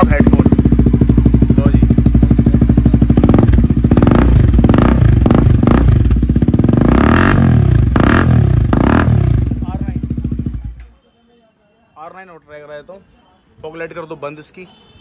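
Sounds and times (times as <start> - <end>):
motorcycle engine idling and revving: 0.0 - 10.9.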